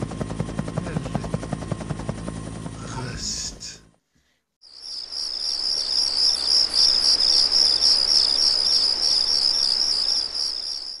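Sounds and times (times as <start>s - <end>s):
cricket chirping: 4.6s - 11.0s.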